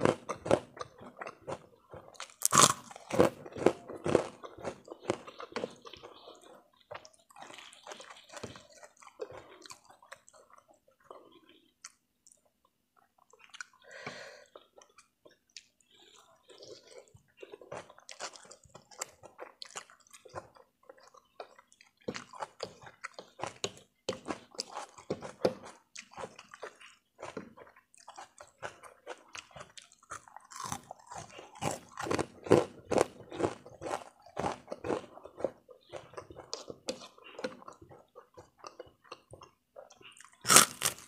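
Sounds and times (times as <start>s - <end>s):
chewing noodles: 0.0s - 41.0s.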